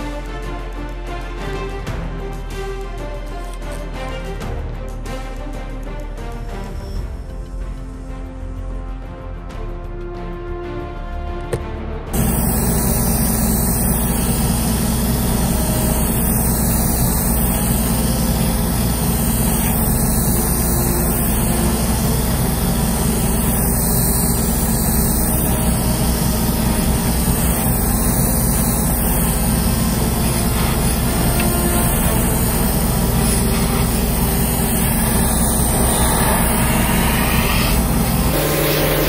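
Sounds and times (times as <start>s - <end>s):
airbrush compressor running: 12.2s - 39.0s
airbrush spraying hiss: 12.2s - 39.0s
extractor fan humming: 12.2s - 39.0s.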